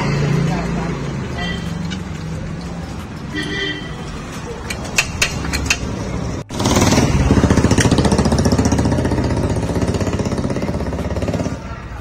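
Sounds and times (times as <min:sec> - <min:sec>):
wrench metal clicks: 0:04.6 - 0:06.0.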